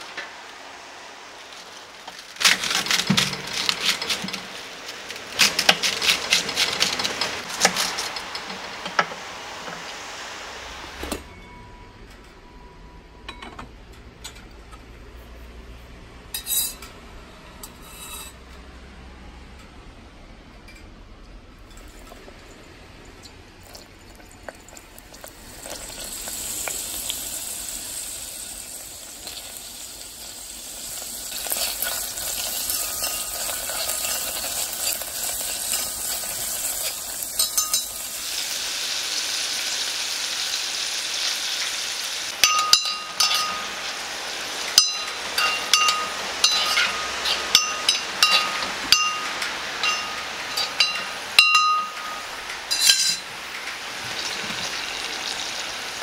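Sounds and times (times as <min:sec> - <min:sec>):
onions sizzling in hot oil: 0:23.6 - 0:56.0
light clinks: 0:42.4 - 0:43.7.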